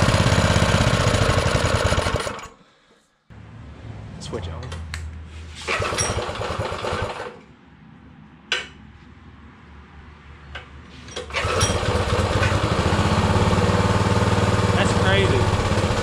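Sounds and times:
small engine running: 0.0s - 2.5s, 5.7s - 7.4s, 11.3s - 16.0s.

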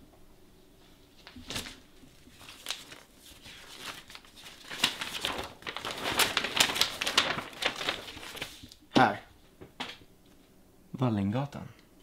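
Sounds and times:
paper map rustling and crackling: 1.1s - 8.8s.

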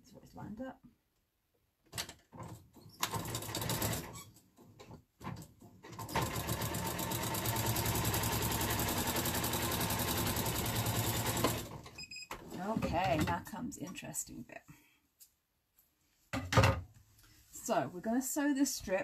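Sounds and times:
sewing machine stitching: 2.9s - 4.2s, 5.8s - 11.8s.

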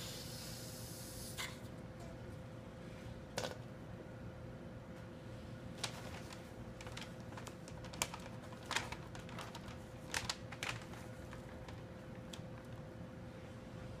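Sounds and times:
faint steady hum: 0.0s - 14.0s
paper bag crinkling: 5.8s - 12.9s.

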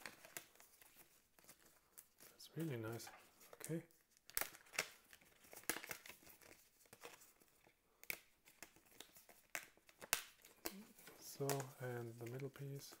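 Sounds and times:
stiff paper crinkling: 0.0s - 13.0s
sharp crackles and snaps: 8.0s - 12.5s.

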